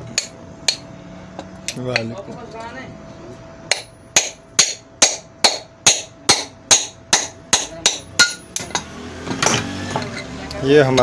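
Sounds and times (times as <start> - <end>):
hammer striking metal motor: 0.0 - 1.0, 3.7 - 10.3.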